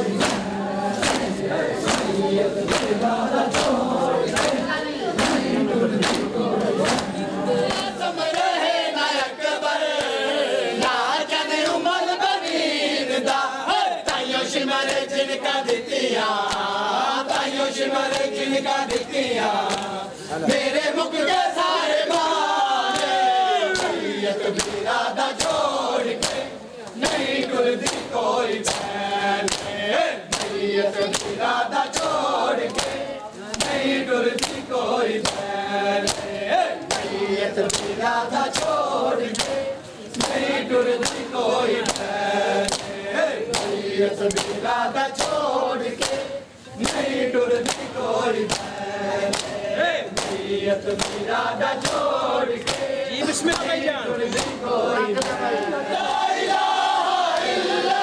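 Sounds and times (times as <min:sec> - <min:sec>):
men chanting in unison: 0:00.0 - 0:58.0
hands slapping on chests: 0:00.1 - 0:08.4, 0:16.4 - 0:16.7, 0:18.1 - 0:20.0, 0:22.1 - 0:24.0, 0:24.6 - 0:44.6, 0:45.2 - 0:52.9, 0:53.5 - 0:54.6, 0:55.2 - 0:55.7.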